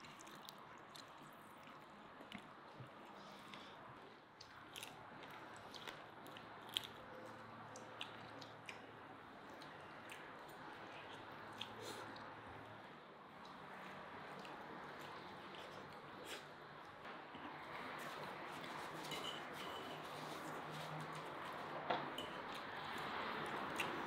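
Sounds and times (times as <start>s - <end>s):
crunchy chewing of fried fish: 0.0s - 3.7s, 4.3s - 17.0s, 22.4s - 24.0s.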